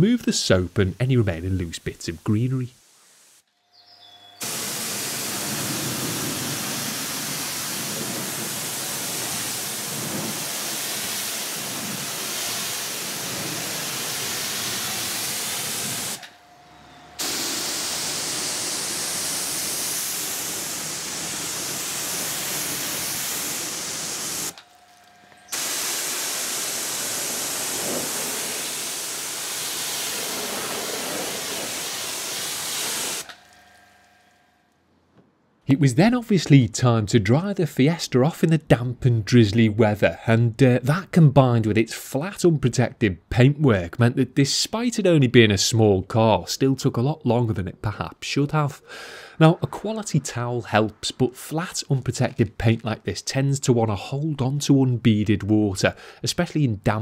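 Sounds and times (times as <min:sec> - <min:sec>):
pressure washer spraying: 0:04.4 - 0:16.3, 0:17.2 - 0:34.0.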